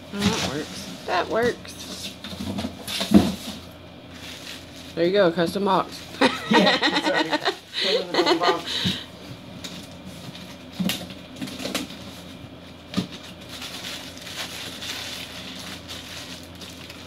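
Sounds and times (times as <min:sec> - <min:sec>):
plastic wrapping crinkling: 0:04.1 - 0:05.0, 0:13.0 - 0:17.0.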